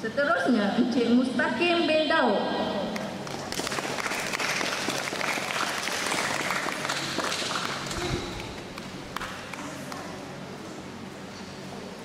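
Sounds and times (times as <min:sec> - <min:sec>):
audience applause: 0:03.2 - 0:09.3.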